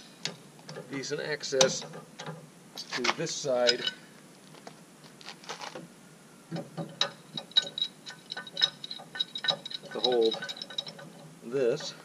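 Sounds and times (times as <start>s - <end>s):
wrench clicking on metal nut: 6.6s - 12.0s.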